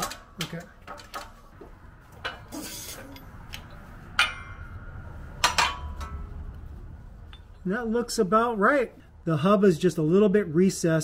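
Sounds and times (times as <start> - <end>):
metal clinks: 7.2 - 7.7.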